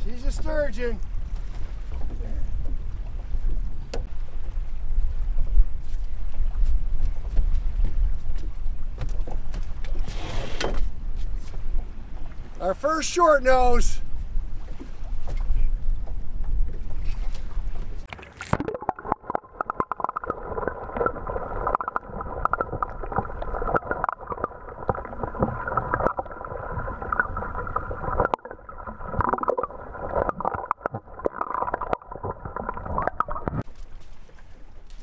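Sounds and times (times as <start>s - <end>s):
wind rumbling on microphone: 0.0s - 12.6s, 14.0s - 18.1s.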